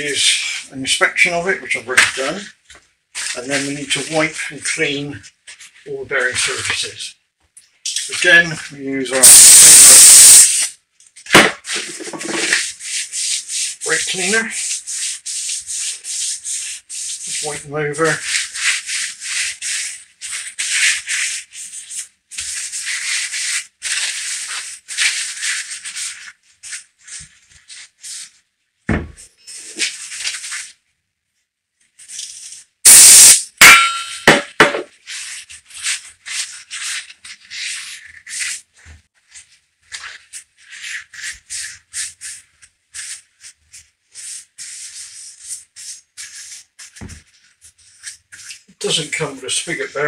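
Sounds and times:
paper towel rubbing metal: 8.1s - 10.8s, 11.6s - 28.5s, 29.4s - 30.8s, 35.0s - 50.0s
aerosol spray hiss: 9.2s - 10.7s, 32.9s - 33.4s.

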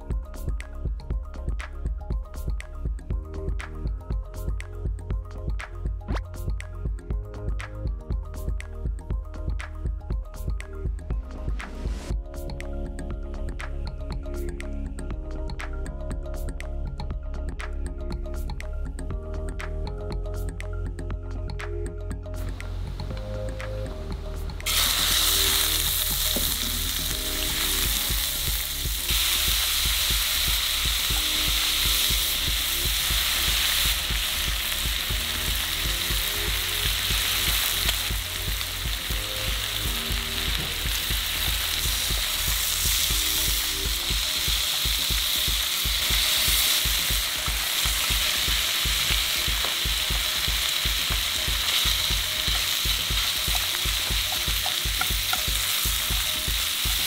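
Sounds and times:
food sizzling in frying pan: 24.6s - 57.0s.

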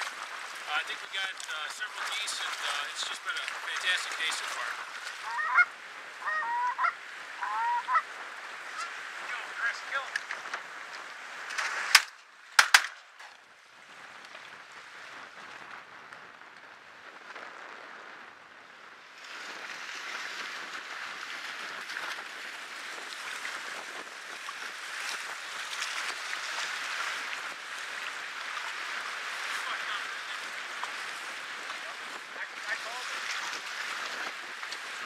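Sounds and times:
choppy lake water: 0.0s - 35.0s
shotgun shots: 11.9s - 13.0s.

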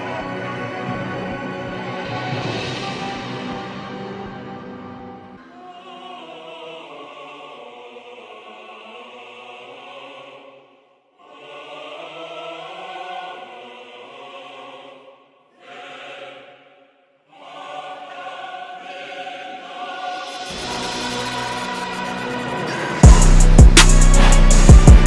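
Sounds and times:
choir singing chant-like phrases: 0.0s - 25.0s.

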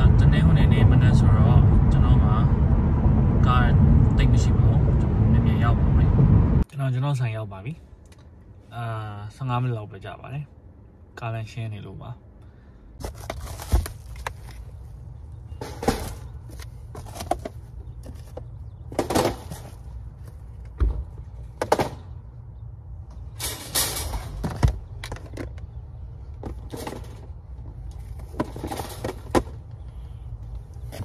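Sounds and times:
low outdoor rumble: 0.0s - 31.0s
plastic bags rustling: 13.0s - 14.8s.

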